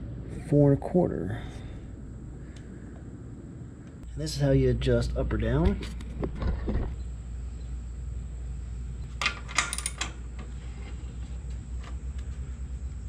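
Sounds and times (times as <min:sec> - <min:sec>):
wrench clinking on metal: 0:09.2 - 0:10.2.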